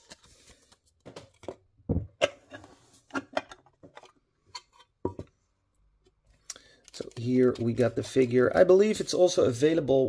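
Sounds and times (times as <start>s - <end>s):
plastic packaging crinkling and clicking: 6.4s - 7.9s.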